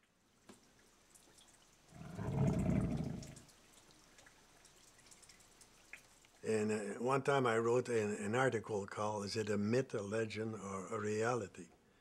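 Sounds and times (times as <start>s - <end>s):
faint lapping water: 0.6s - 6.4s.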